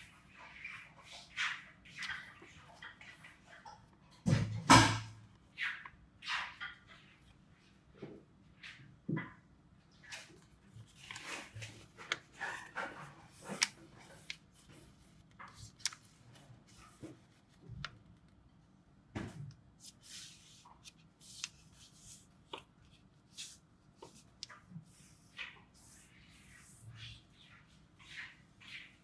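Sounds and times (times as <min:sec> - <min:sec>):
paper rustling and crinkling: 0:10.1 - 0:18.3, 0:19.8 - 0:25.6
fingers swishing on paper: 0:10.8 - 0:17.6, 0:19.8 - 0:29.0.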